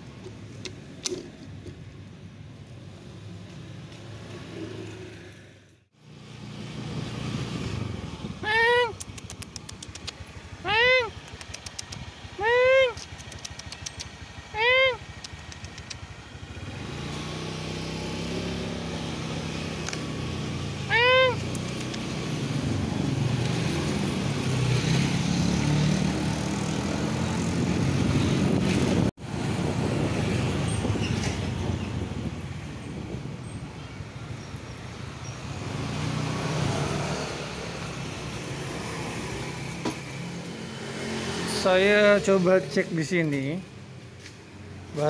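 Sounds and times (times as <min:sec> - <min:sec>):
small motorcycle engine: 0:10.2 - 0:31.0
cat meowing: 0:20.9 - 0:21.4.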